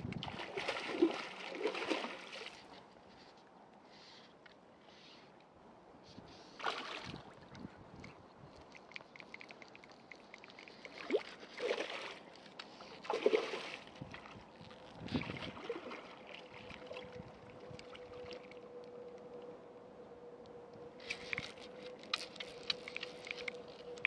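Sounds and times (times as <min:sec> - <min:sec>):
faint steady hum: 0:00.0 - 0:24.0
fish splashing in water: 0:00.2 - 0:02.7, 0:06.6 - 0:07.3, 0:09.2 - 0:14.4.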